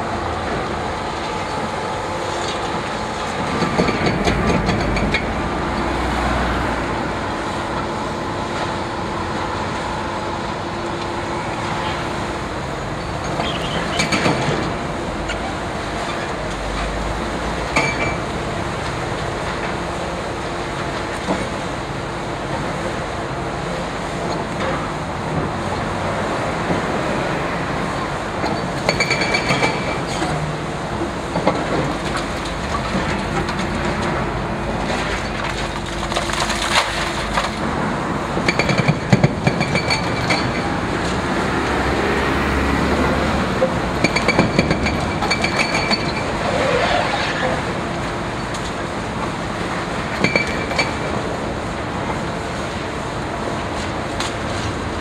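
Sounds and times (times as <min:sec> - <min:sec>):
excavator engine running: 0:00.0 - 0:46.6
falling debris: 0:32.0 - 0:37.7
concrete breaking and crunching: 0:34.9 - 0:37.6.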